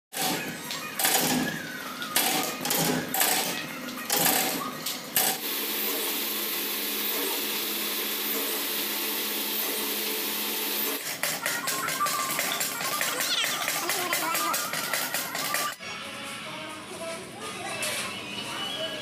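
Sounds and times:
machine motor humming: 0:05.2 - 0:11.0.

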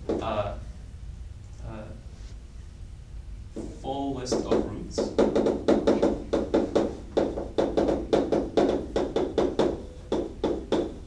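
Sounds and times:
chalk tapping on blackboard: 0:03.6 - 0:11.0.

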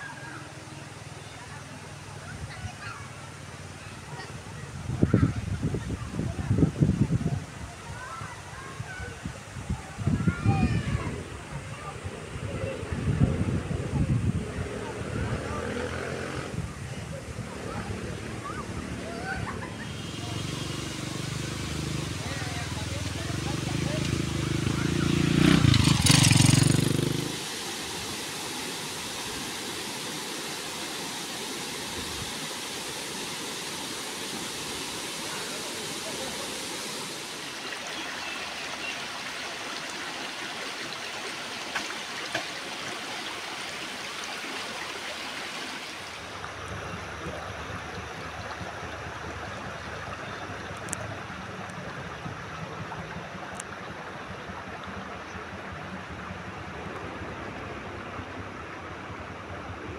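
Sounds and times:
river water flowing over stones: 0:14.8 - 0:59.9.

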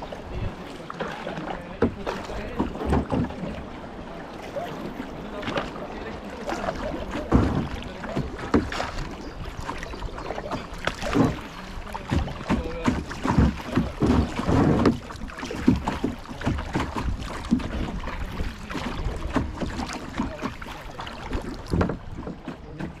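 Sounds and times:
flowing river: 0:00.0 - 0:23.0
paddle knocks: 0:00.0 - 0:23.0
paddles splashing in water: 0:00.0 - 0:23.0.

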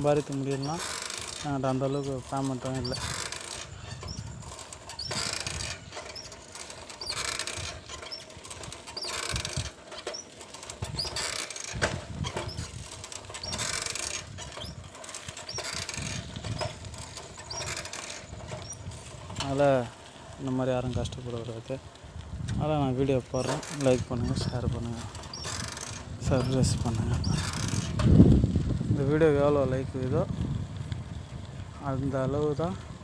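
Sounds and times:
faint squeaks: 0:00.0 - 0:20.8, 0:23.0 - 0:28.0
bicycle rubbing swishes: 0:00.0 - 0:21.6.

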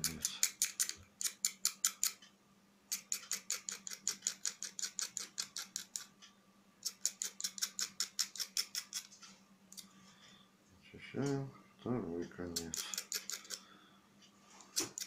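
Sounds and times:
knife scraping copper wire: 0:06.8 - 0:09.1, 0:12.6 - 0:13.6, 0:14.7 - 0:15.0.

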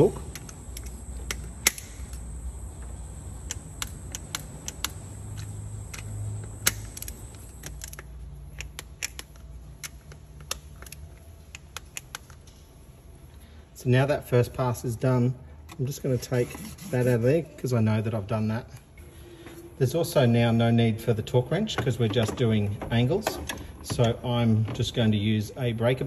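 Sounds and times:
torque wrench clicking on bolts: 0:00.0 - 0:12.4.

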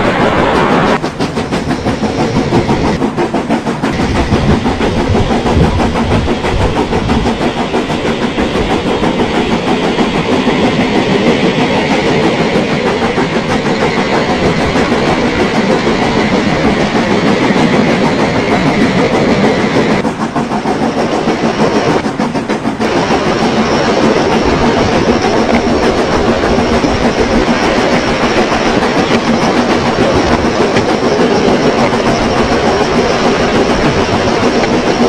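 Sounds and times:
model train rumbling: 0:00.0 - 0:35.0
wheels clicking over rails: 0:00.0 - 0:35.0.

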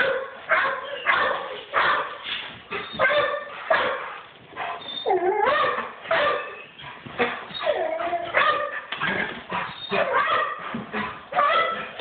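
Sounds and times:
dog barking: 0:00.0 - 0:02.2, 0:03.0 - 0:04.1, 0:05.4 - 0:06.6, 0:08.3 - 0:08.9, 0:09.9 - 0:12.0.

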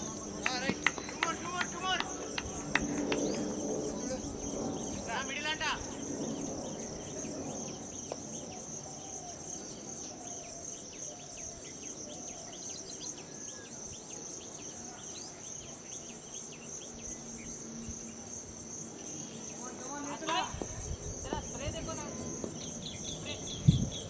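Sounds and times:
insects trilling: 0:00.0 - 0:24.0.

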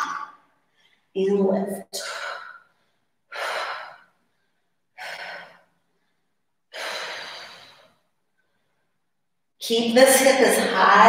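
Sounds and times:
woman breathing heavily: 0:01.9 - 0:09.1.

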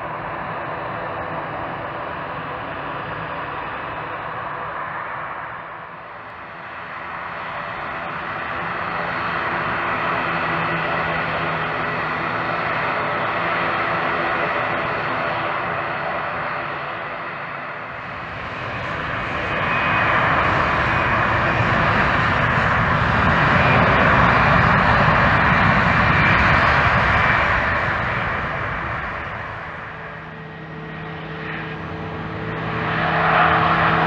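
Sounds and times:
turboprop engines running: 0:00.0 - 0:34.0.

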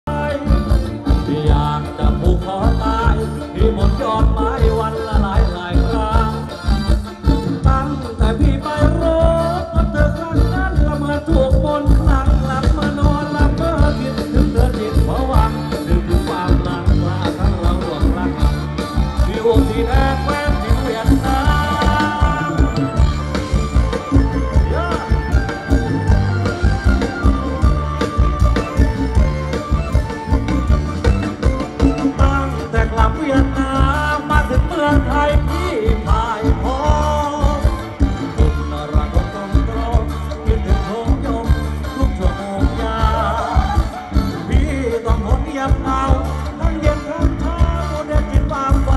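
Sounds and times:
live band playing dance music: 0:00.0 - 0:48.9
person singing: 0:00.0 - 0:48.9
steady drum beat: 0:00.1 - 0:48.9.

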